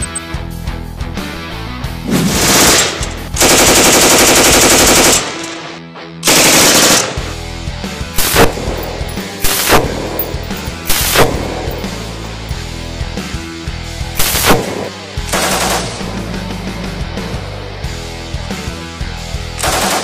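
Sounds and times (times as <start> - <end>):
rock music: 0.0 - 20.0
machine gun firing bursts: 2.3 - 7.3, 8.2 - 12.0, 14.2 - 16.1, 19.6 - 20.0.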